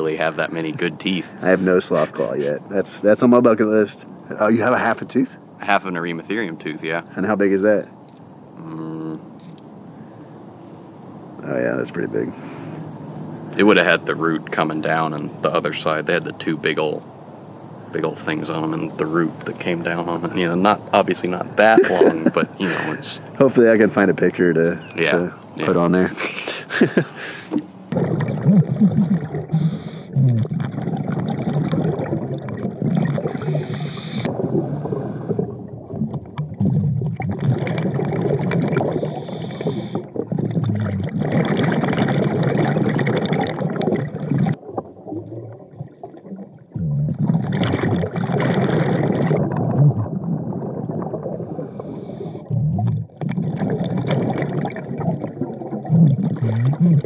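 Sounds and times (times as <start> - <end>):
gurgling exhaled bubbles: 0.0 - 5.3, 18.0 - 57.0
diver breathing through regulator: 26.5 - 27.6, 29.5 - 30.2, 33.3 - 35.4, 38.8 - 40.1, 51.6 - 52.5.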